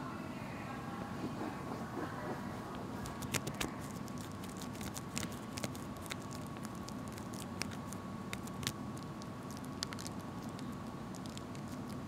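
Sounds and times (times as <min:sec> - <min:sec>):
fingernails scratching shrink wrap: 0:03.0 - 0:12.0.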